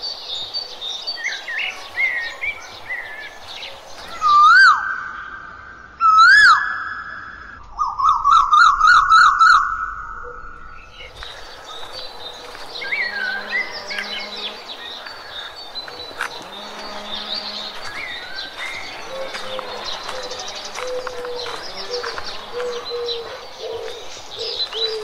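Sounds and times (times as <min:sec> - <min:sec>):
chorus of birds chirping: 0:00.0 - 0:25.0
bird whistled call: 0:04.1 - 0:10.9.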